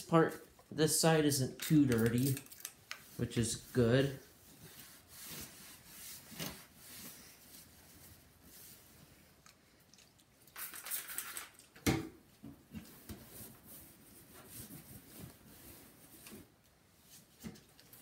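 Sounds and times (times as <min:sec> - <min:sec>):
paper towel rubbing plastic: 0:03.1 - 0:08.9.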